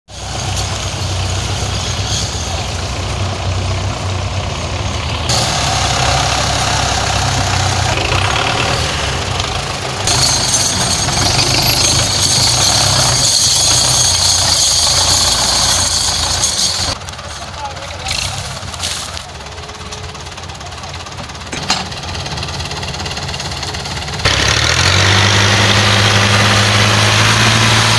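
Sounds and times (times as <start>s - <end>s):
tractor diesel engines under load: 0.1s - 27.9s.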